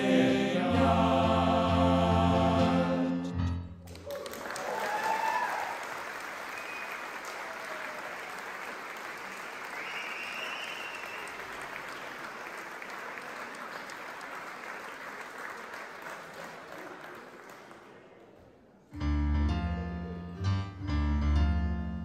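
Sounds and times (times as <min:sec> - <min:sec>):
audience applauding: 0:03.8 - 0:18.4.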